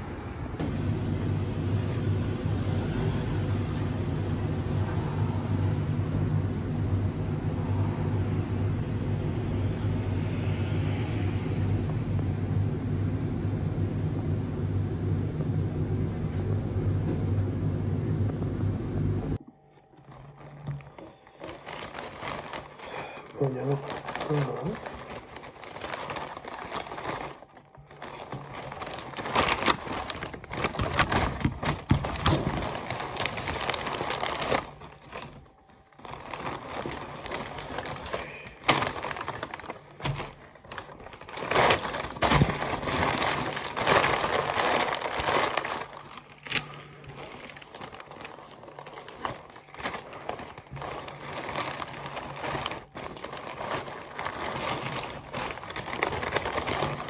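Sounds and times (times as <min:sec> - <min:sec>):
paper wrapping crinkling: 0:19.4 - 0:57.0.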